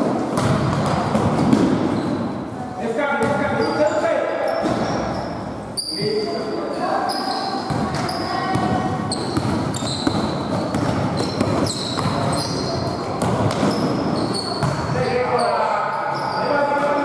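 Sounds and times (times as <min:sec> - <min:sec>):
ball bouncing on court: 0:00.0 - 0:02.2, 0:03.2 - 0:03.7, 0:04.6 - 0:05.2, 0:07.6 - 0:15.0
shoes squeaking on floor: 0:00.4 - 0:02.5, 0:03.2 - 0:17.0
voices: 0:05.9 - 0:10.0.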